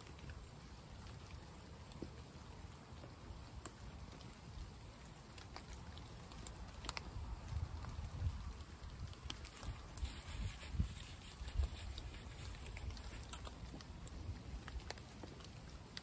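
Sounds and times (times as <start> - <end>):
rain pattering on a tarp: 0.0 - 16.0.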